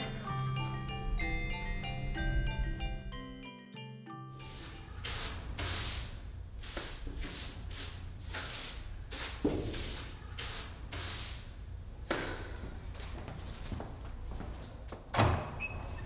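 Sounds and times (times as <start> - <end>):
broom sweeping stairs: 4.3 - 15.0.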